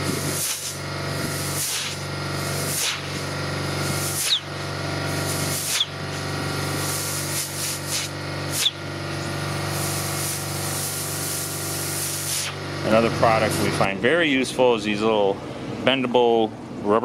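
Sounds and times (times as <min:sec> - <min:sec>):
air and water hissing from hose: 0:00.0 - 0:12.6
air compressor humming: 0:00.0 - 0:16.9
sharp spurts with squeak: 0:04.1 - 0:04.6, 0:05.3 - 0:06.2, 0:07.7 - 0:08.8.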